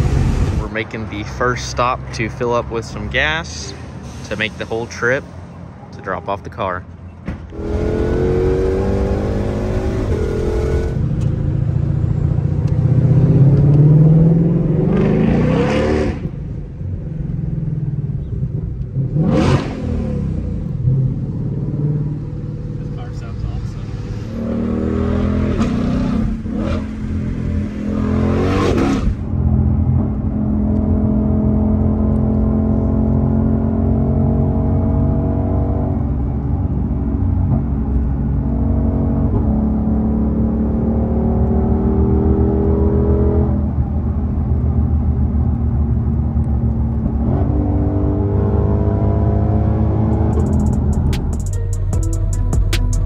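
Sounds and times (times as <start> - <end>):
loud rushing noise: 0.0 - 1.3
car engine revving through gears: 7.5 - 11.4, 12.6 - 16.4, 18.9 - 36.2, 38.4 - 43.7, 47.0 - 51.5.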